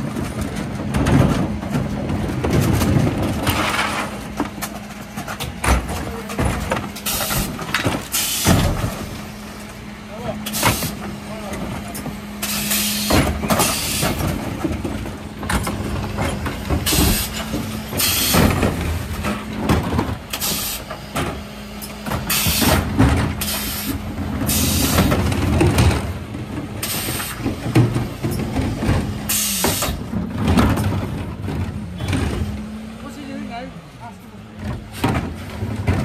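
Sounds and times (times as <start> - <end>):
refuse truck engine humming: 0.0 - 36.0
bins clattering: 22.0 - 32.8, 34.6 - 36.0.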